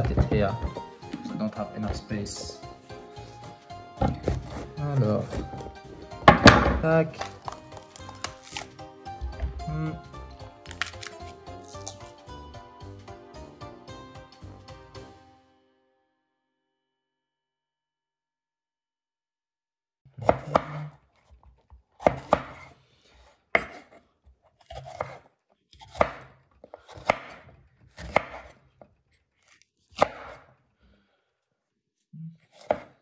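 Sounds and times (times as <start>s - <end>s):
knife knocking on cutting board: 4.0s - 4.7s, 5.3s - 6.9s
pepper crunching: 6.8s - 12.3s.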